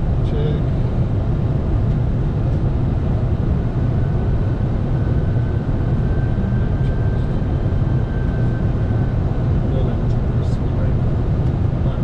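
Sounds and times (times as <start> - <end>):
airflow and engine rush: 0.0 - 12.0.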